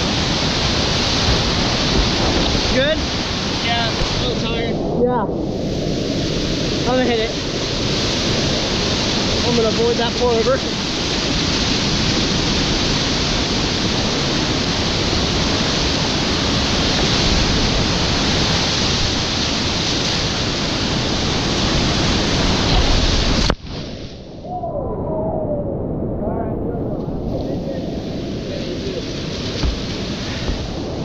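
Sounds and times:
whitewater rapids rushing: 6.0s - 23.5s.

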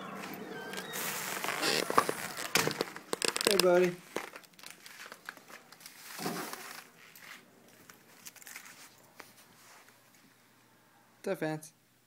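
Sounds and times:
microphone handling rustling: 0.7s - 5.1s.

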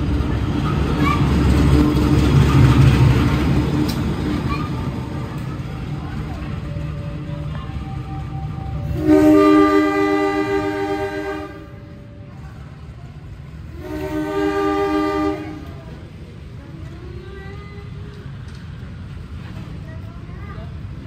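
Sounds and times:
locomotive air horn blasts: 8.8s - 11.8s, 13.8s - 15.7s.

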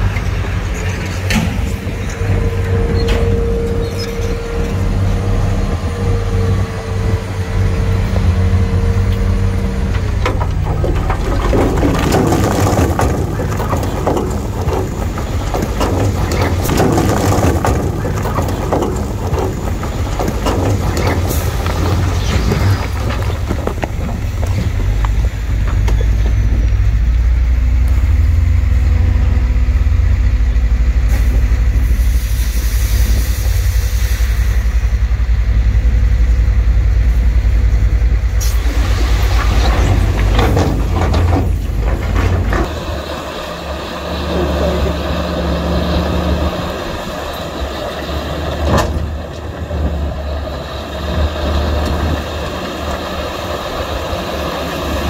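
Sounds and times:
heavy diesel machinery rumbling: 0.0s - 55.0s
rattling noise: 9.0s - 28.1s, 38.2s - 55.0s
hiss: 31.1s - 34.8s.

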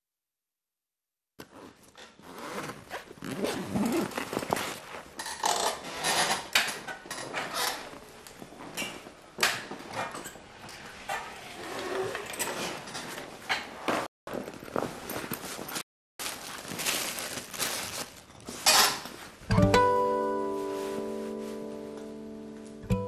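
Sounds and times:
fabric bag rustling: 1.5s - 5.1s, 14.3s - 19.5s.

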